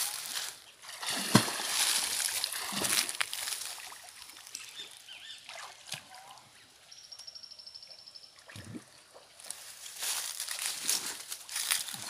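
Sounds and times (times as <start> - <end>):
water splashing: 0.0 - 6.4
faint bird chirps: 4.6 - 5.5, 6.1 - 8.6.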